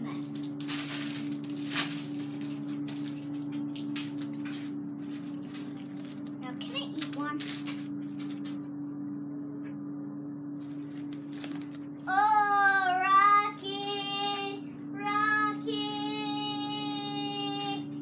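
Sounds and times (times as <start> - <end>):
steady low hum: 0.0 - 18.0
child singing long notes: 12.1 - 17.9.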